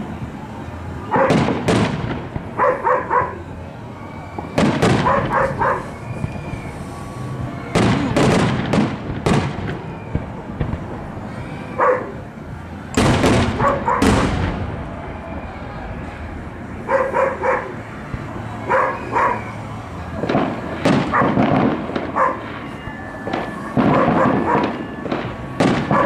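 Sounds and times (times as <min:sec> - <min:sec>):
fireworks booming: 0:00.0 - 0:02.8, 0:03.4 - 0:26.0
dog barking: 0:01.1 - 0:01.4, 0:02.6 - 0:03.4, 0:05.0 - 0:05.9, 0:11.8 - 0:12.2, 0:13.6 - 0:14.2, 0:16.8 - 0:17.8, 0:18.7 - 0:19.5, 0:21.1 - 0:21.4, 0:22.1 - 0:22.4, 0:23.9 - 0:24.7.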